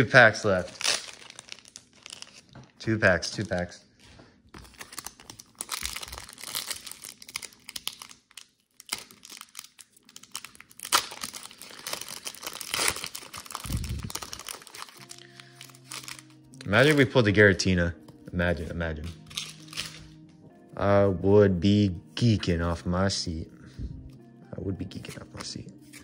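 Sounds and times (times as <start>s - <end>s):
foil wrapper crinkling and tearing: 0.0s - 3.7s, 4.5s - 17.2s, 19.1s - 20.1s.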